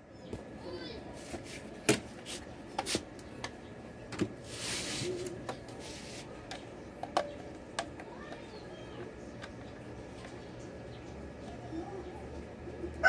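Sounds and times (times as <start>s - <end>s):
rubbing scrape on concrete: 4.5s - 6.3s.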